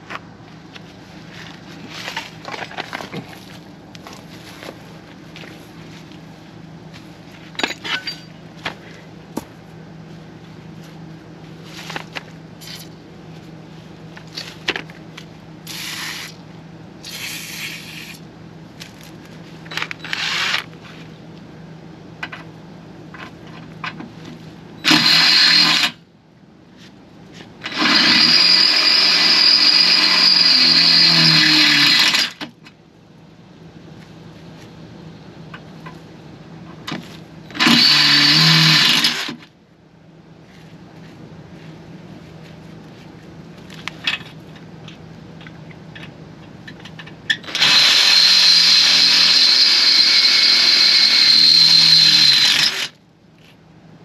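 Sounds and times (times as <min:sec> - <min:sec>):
cordless drill boring into steel: 0:20.0 - 0:20.6, 0:24.8 - 0:26.0, 0:27.6 - 0:32.4, 0:37.5 - 0:39.4, 0:47.4 - 0:53.0.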